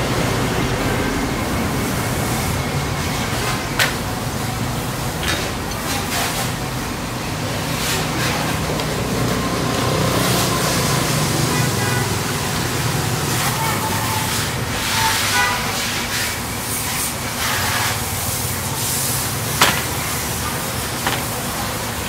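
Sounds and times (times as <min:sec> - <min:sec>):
knocks and scrapes of metal parts: 0:19.5 - 0:21.7.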